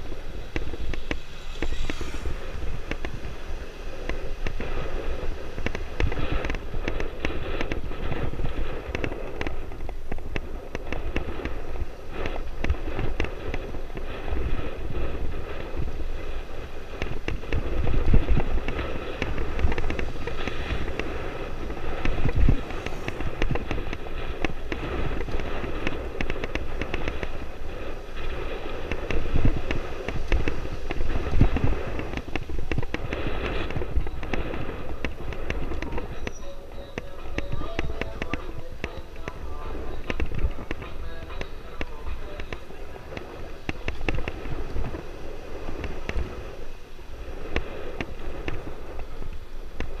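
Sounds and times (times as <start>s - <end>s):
rough road noise: 0.0s - 50.0s
wind buffeting microphone: 0.0s - 50.0s.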